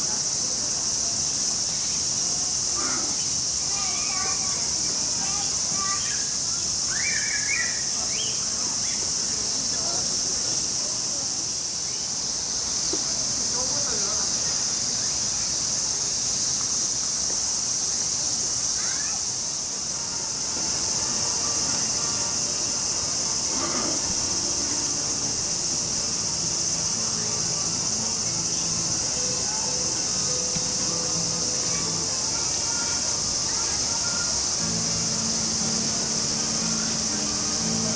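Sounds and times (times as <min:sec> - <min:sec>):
insect chorus: 0:00.0 - 0:37.9.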